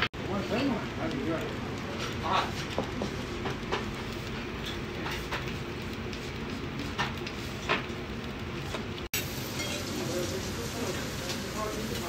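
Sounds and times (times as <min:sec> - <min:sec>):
restaurant room rumble: 0:00.0 - 0:12.0
tableware clinking: 0:09.2 - 0:10.1.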